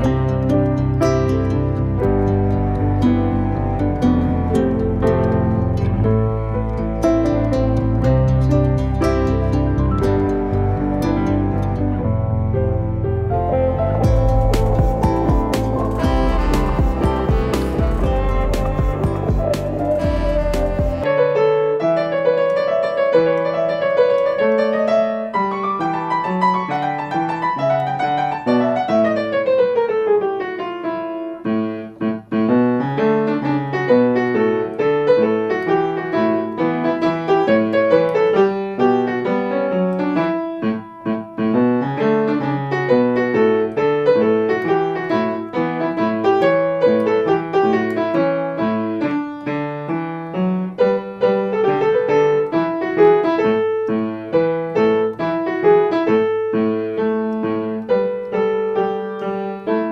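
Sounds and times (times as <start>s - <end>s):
piano music: 0.0s - 59.9s.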